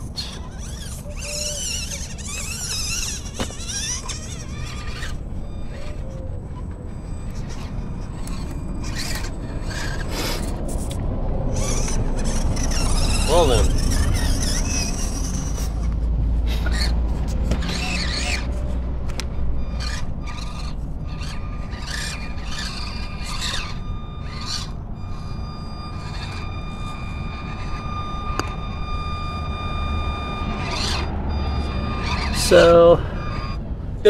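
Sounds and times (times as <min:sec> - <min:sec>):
scraping and rubbing on rock: 0:00.0 - 0:28.4
small electric motor whining: 0:00.0 - 0:34.0.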